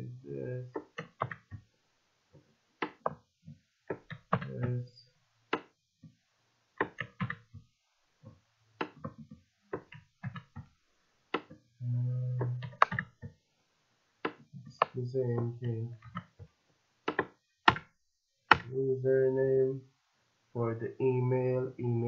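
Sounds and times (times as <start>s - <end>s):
keyboard typing clicks: 0.7s - 1.6s, 3.9s - 4.8s, 6.8s - 7.5s, 9.8s - 10.6s, 12.3s - 13.3s, 17.1s - 17.9s.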